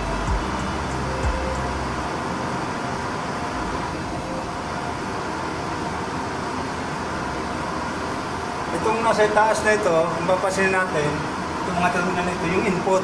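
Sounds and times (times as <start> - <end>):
low hum: 0.0 - 8.7.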